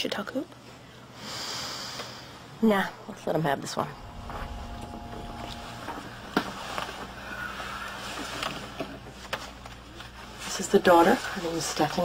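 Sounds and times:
low background rumble: 2.9 - 7.8
held tones: 3.8 - 7.5.

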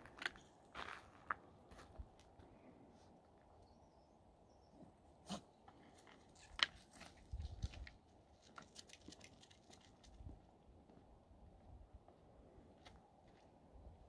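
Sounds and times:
footsteps crunching on asphalt: 0.0 - 2.3.

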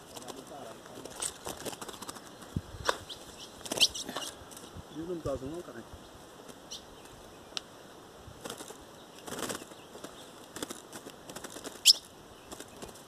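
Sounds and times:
bird wings fluttering: 0.0 - 4.7, 8.3 - 13.0
bird chirping: 0.4 - 5.3, 5.9 - 7.8, 8.6 - 10.4, 11.4 - 13.0.

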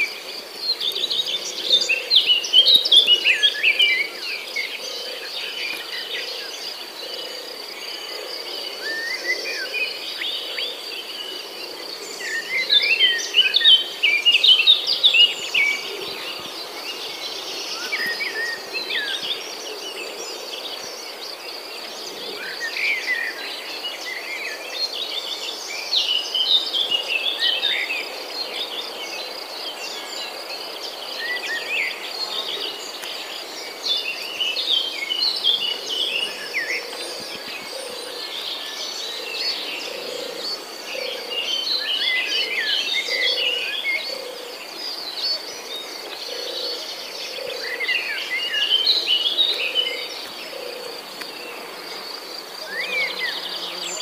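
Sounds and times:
birds chirping and trilling: 0.0 - 54.0
high insect drone: 0.0 - 54.0.

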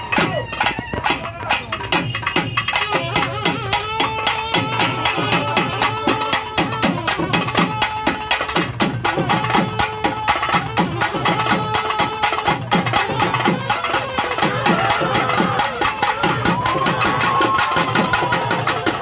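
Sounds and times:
fast rhythmic drumming: 0.0 - 19.0
pitched instrument holding notes: 1.7 - 16.6.

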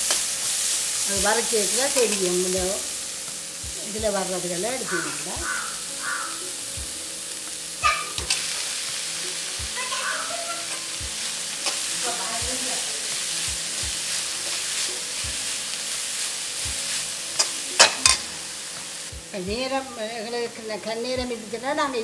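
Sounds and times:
frying sizzle: 0.0 - 22.0
metal spoon scraping metal pan: 7.8 - 8.7, 11.5 - 12.2, 14.0 - 18.3
spoon clanking against pan: 7.8 - 8.8, 9.9 - 12.1, 17.3 - 19.0.

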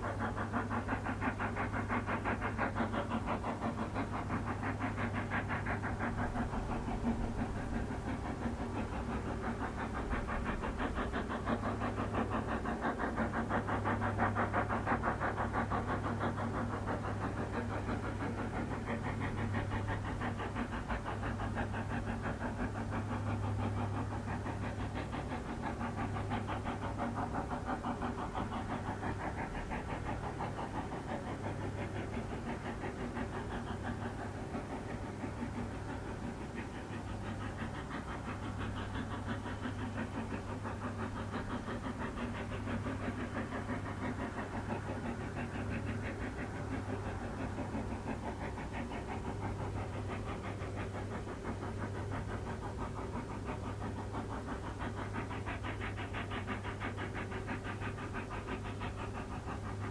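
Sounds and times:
steady low hum: 0.0 - 59.9
steam locomotive chuffing: 0.0 - 59.9.

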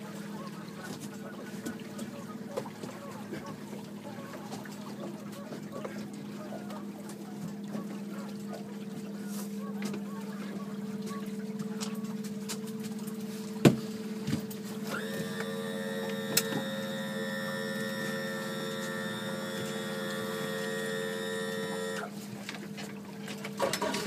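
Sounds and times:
boat motor humming: 0.0 - 24.0
small electric motor whining: 14.8 - 22.1.

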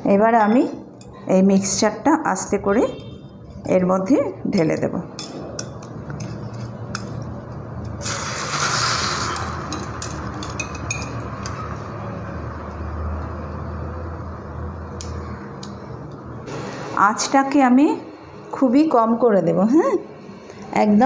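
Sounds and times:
omelette mixture sizzling in a pan: 8.0 - 10.1.

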